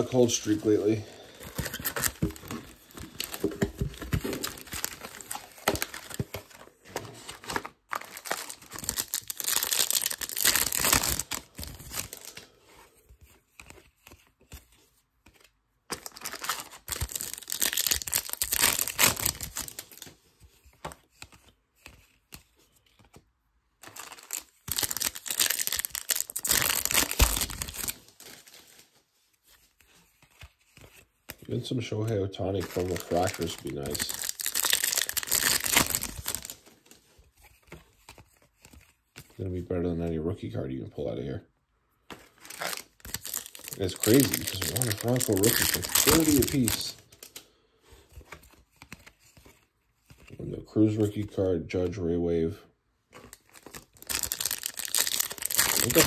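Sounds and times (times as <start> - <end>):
foil wrappers tearing and crinkling: 0.0 - 6.6, 7.2 - 12.5, 15.9 - 20.1, 23.8 - 28.8, 32.6 - 36.7, 42.3 - 47.4, 53.2 - 56.0.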